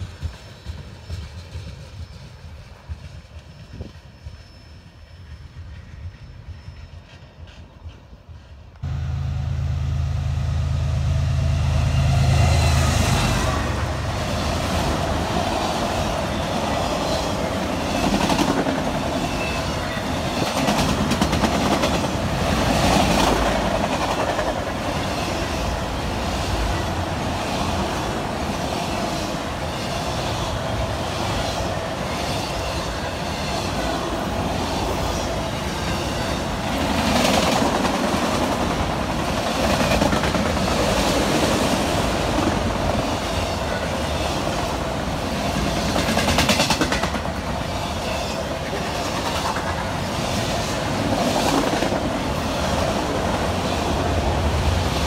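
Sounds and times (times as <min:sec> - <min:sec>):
diesel locomotive engine drone: 0:08.2 - 0:55.0
train wheels clacking over rail joints: 0:17.0 - 0:25.4, 0:45.5 - 0:53.5.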